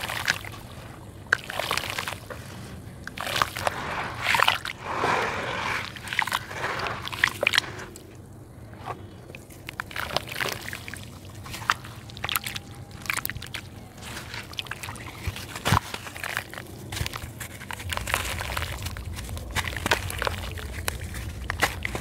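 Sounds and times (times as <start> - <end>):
dirt block crunching: 11.4 - 22.0.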